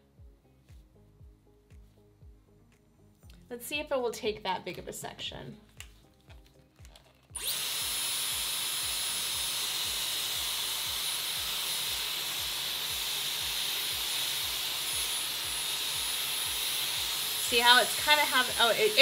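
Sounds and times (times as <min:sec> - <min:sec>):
hair styler rushing air with whine: 0:07.4 - 0:19.0.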